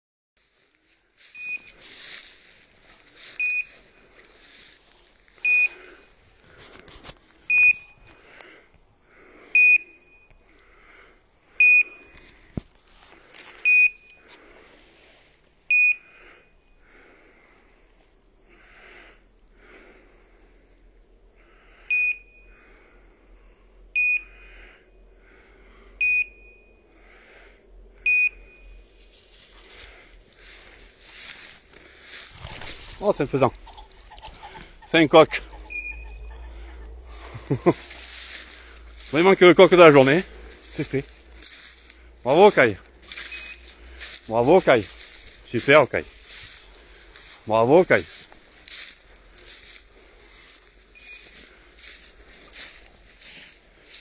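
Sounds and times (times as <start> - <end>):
steps rustling through dry grass: 0.4 - 8.4, 11.9 - 15.6, 28.7 - 54.0
collar short high beeps: 1.3 - 1.8, 3.4 - 3.8, 5.4 - 5.8, 7.5 - 8.0, 35.6 - 36.3, 43.2 - 43.7, 51.0 - 51.3.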